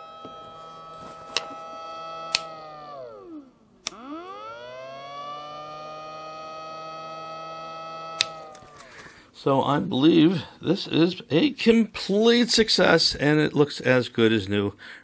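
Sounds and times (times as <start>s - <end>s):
pump motor whining: 0.0s - 9.2s
power switch click: 2.2s - 2.6s, 8.2s - 8.6s.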